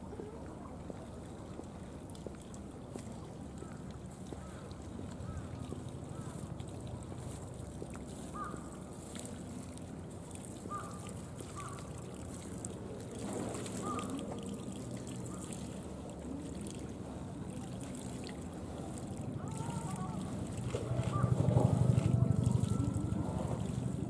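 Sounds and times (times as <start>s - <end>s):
faint water trickling: 0.0s - 24.0s
outdoor hum: 17.8s - 24.0s.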